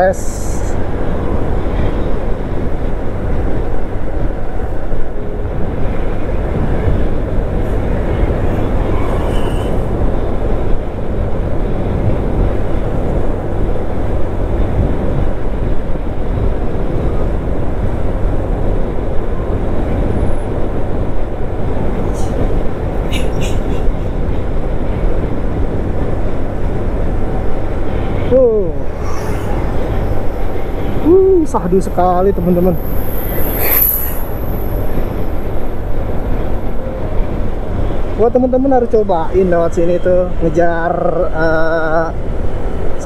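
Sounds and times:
vehicle driving on highway: 0.0s - 43.0s.

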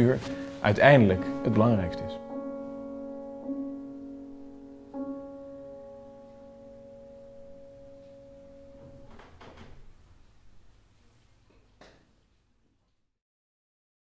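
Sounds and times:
piano chords: 0.0s - 10.8s
soft knocks: 8.8s - 9.9s.

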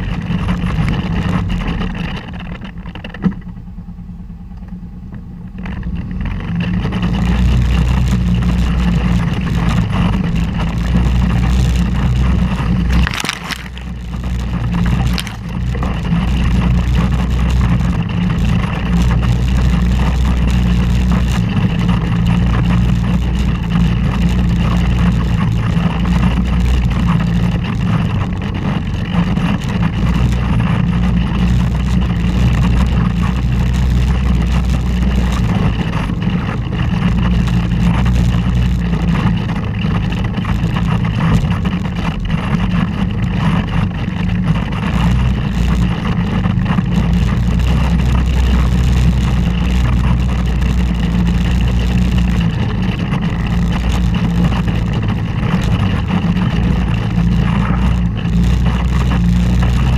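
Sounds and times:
vehicle engine running: 0.0s - 59.9s.

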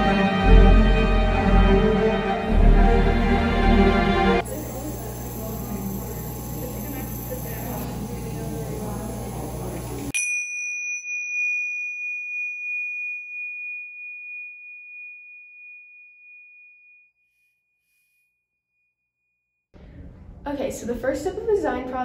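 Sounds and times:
bright bell-like ding: 10.2s - 17.0s.

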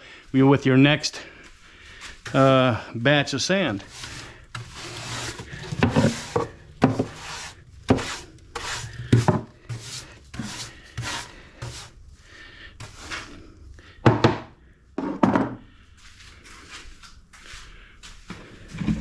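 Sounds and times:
brush sweeping sand: 3.2s - 12.0s, 12.8s - 13.4s.

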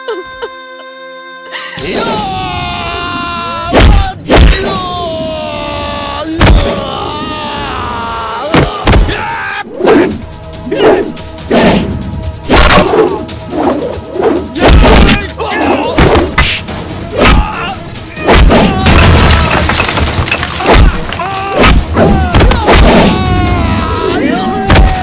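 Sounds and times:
dramatic background music: 1.6s - 25.0s
punch impact sound effects: 14.6s - 15.2s.

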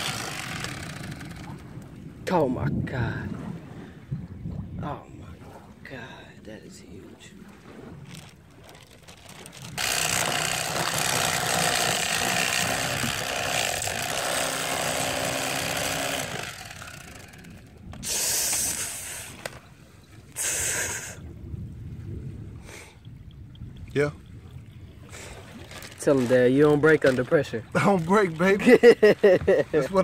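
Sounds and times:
electric knife cutting fish: 0.0s - 1.6s, 9.8s - 17.6s.

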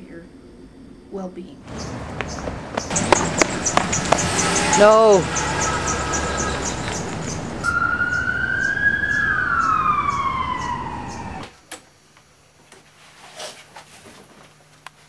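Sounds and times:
steady rushing noise: 1.6s - 11.5s
siren wail: 3.0s - 11.5s.

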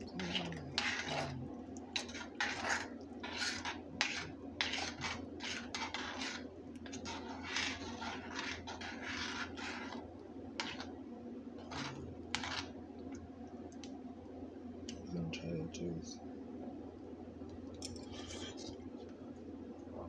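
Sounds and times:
wooden spoon stirring in pan: 0.0s - 11.0s, 11.6s - 12.8s.

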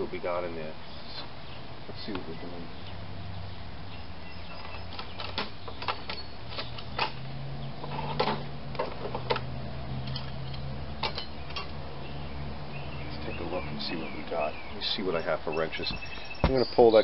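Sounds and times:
metal tools clinking in toolbox: 10.0s - 11.7s.

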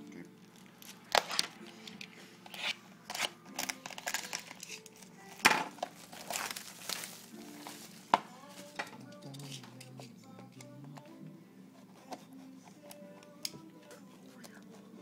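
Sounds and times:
quiet music: 0.0s - 15.0s
plastic wrap crinkling: 3.5s - 9.9s.

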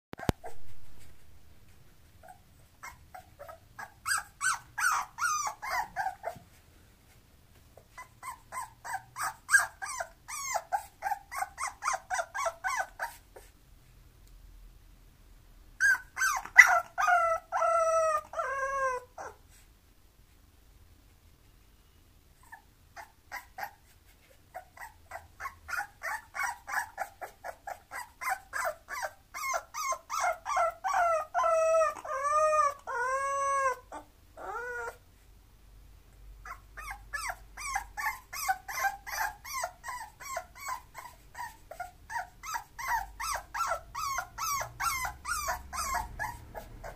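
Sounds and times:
puppy whining and yelping: 0.2s - 1.3s, 2.1s - 6.6s, 7.7s - 13.6s, 15.8s - 19.7s, 22.3s - 35.2s, 36.4s - 46.9s
puppy howling cries: 2.8s - 6.3s, 15.8s - 19.4s, 24.8s - 35.0s, 36.5s - 46.9s.

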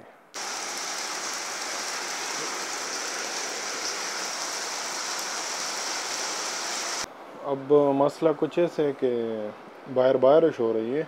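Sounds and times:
steady rain falling: 0.4s - 7.1s.

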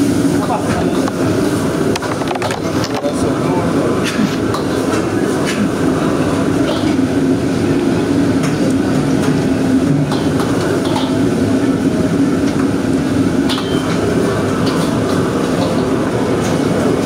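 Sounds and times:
wok burner and exhaust rushing: 0.0s - 17.0s
ladle clinking against wok: 13.5s - 14.0s.

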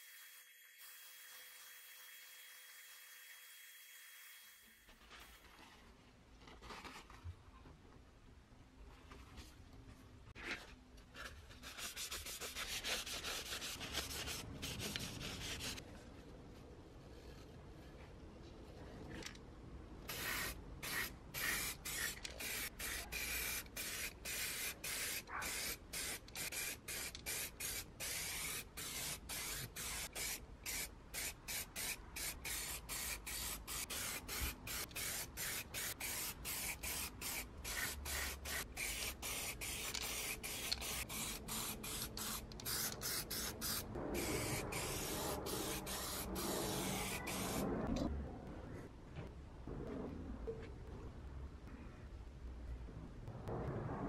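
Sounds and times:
aerosol can spraying: 20.1s - 47.6s.

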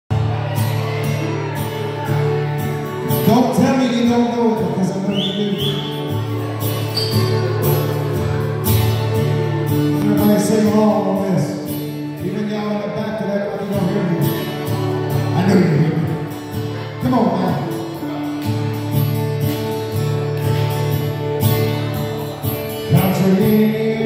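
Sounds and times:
live country band playing: 0.1s - 24.0s.

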